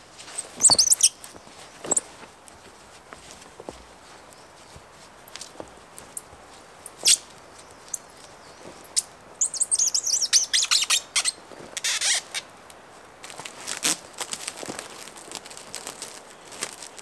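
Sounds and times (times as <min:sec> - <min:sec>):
songbird twittering: 0:00.6 - 0:01.2, 0:07.0 - 0:11.4
plastic stretch wrap crackling: 0:13.2 - 0:17.0.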